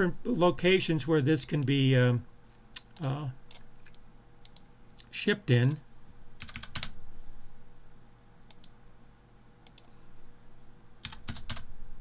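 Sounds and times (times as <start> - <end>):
keyboard and mouse clicks: 2.7 - 5.8, 6.4 - 7.0, 8.5 - 8.8, 9.6 - 10.0, 11.0 - 11.7.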